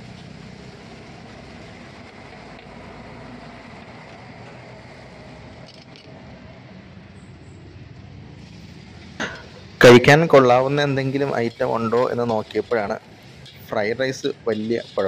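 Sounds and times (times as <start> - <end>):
market din: 8.4 - 15.0.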